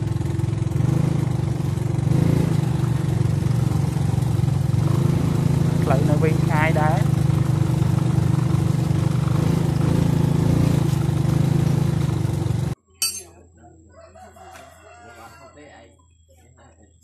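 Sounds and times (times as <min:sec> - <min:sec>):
small motorcycle engine running: 0:00.0 - 0:12.8
sharp metallic clink: 0:13.0 - 0:13.4.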